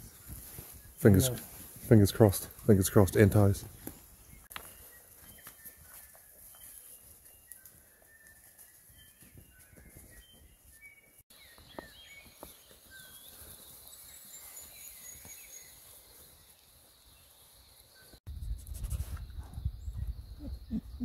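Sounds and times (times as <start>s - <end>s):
birds chirping and whistling: 2.9s - 16.5s.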